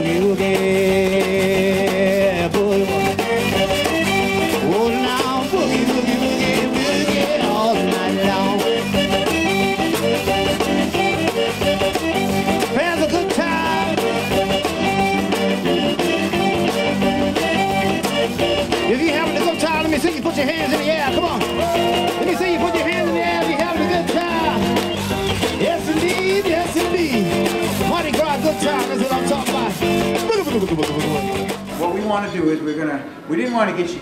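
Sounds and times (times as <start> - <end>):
accordion: 0.0 - 32.4
guitar: 0.0 - 34.0.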